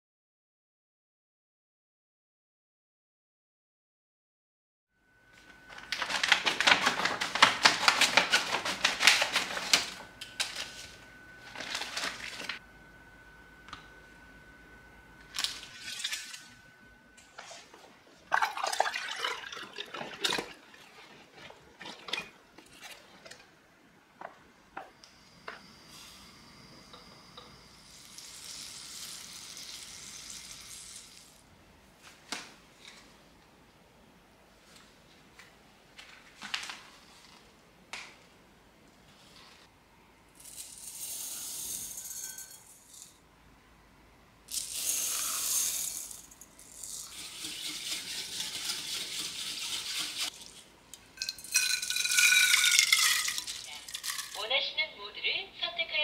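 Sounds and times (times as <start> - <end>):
rustling and splashing: 18.2 - 23.4
soup pouring into pot: 18.4 - 22.1, 51.2 - 54.4
containers and utensils knocking: 51.2 - 54.4.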